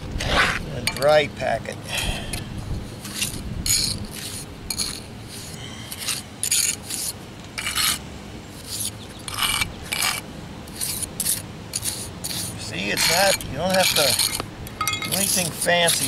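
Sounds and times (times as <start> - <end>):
trowel scraping cement mix: 3.0 - 8.0, 8.6 - 14.4, 15.1 - 16.0.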